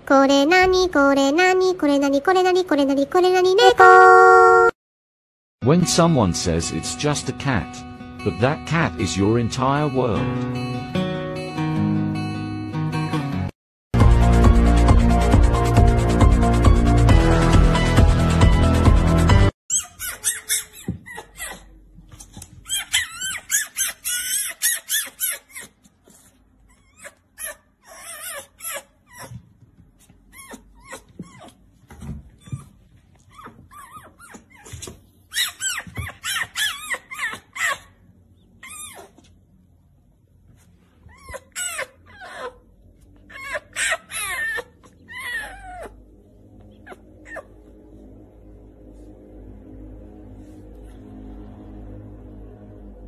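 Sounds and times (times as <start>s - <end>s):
fox squeaky chirps and whines: 19.7s - 21.6s, 22.6s - 29.4s, 33.3s - 39.3s, 41.1s - 42.6s, 43.2s - 46.0s, 46.7s - 47.5s.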